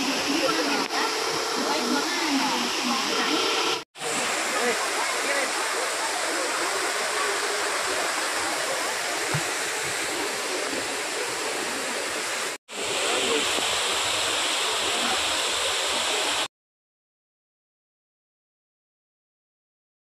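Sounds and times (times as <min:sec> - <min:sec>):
waterfall rushing: 0:00.0 - 0:16.5.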